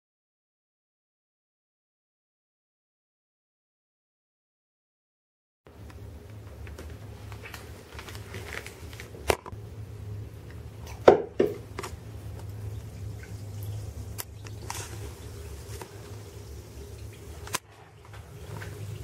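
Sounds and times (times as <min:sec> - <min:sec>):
low hum: 0:05.7 - 0:11.0, 0:11.6 - 0:19.0
plastic bag crinkling: 0:06.7 - 0:09.5.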